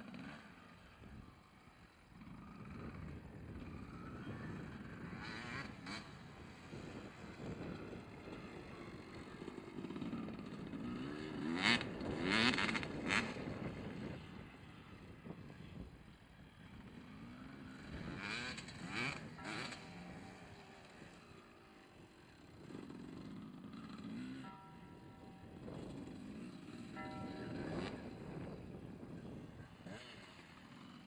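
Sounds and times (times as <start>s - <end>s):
dirt bike engine revving: 2.2s - 6.7s, 8.0s - 13.8s, 16.8s - 21.4s, 29.6s - 31.0s.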